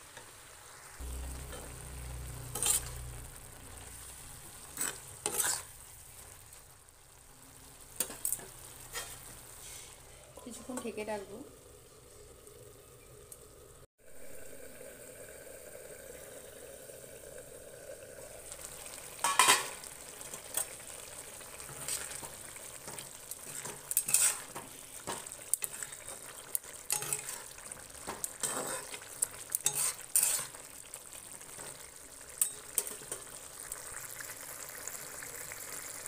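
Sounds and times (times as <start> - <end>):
spinach sizzling in a pan: 0.0 - 36.0
metal spatula scraping a pan: 2.4 - 3.2, 4.4 - 5.8, 8.0 - 11.0, 21.6 - 30.7.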